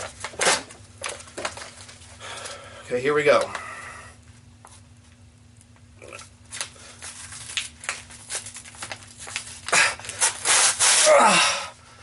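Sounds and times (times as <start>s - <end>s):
phone book paper crackling: 6.5s - 10.9s
loud paper rip: 7.8s - 11.4s.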